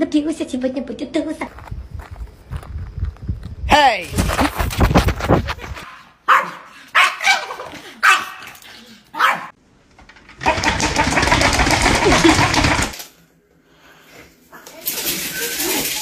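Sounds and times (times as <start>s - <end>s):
small dog barking: 5.8s - 8.5s, 9.2s - 9.6s.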